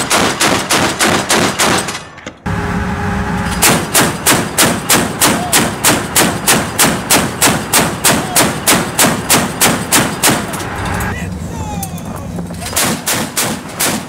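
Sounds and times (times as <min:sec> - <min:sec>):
chain gun firing burst: 0:00.0 - 0:02.1, 0:03.6 - 0:10.6, 0:12.7 - 0:14.0.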